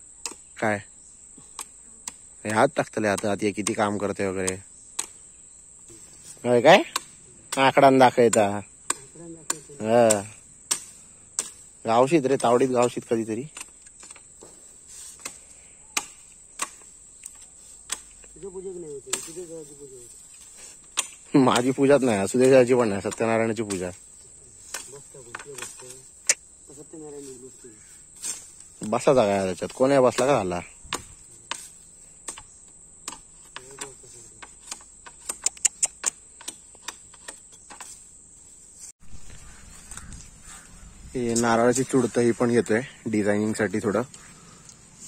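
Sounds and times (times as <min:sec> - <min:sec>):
high insect trill: 0:00.0 - 0:45.0
sharp chopping strikes: 0:06.8 - 0:11.7, 0:12.3 - 0:18.3, 0:19.1 - 0:19.5, 0:20.4 - 0:24.0, 0:29.6 - 0:38.0
sharp clicks and taps: 0:32.3 - 0:37.9.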